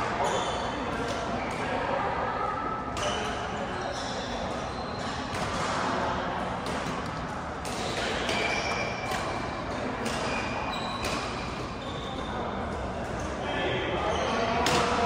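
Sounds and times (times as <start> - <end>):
shoes squeaking on court: 3.0 - 5.9, 6.8 - 13.2
racket hitting shuttlecock: 6.6 - 10.4.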